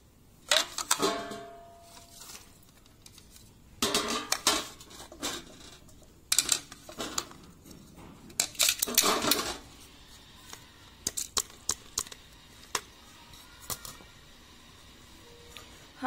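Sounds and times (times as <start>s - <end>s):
clinking and scraping: 0.6s - 9.8s.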